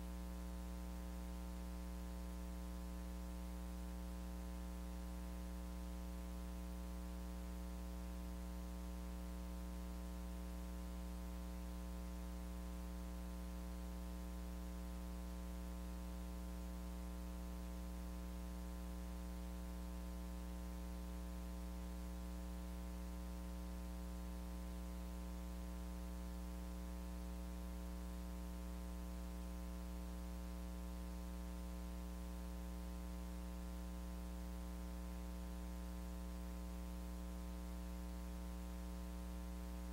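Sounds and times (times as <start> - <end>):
electrical mains hum: 0.0 - 39.9.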